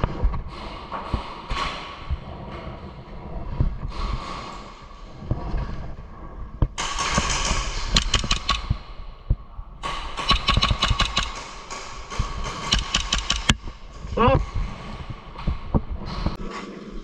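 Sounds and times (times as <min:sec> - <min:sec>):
sharp clicks and knocks: 0:06.5 - 0:16.4.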